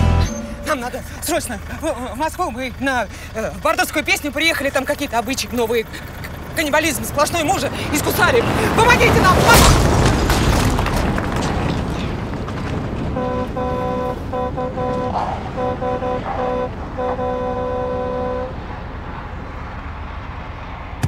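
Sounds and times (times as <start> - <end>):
vehicle horn honking: 0.0 - 1.2, 13.2 - 18.6
vehicle engine and road noise: 0.0 - 21.0.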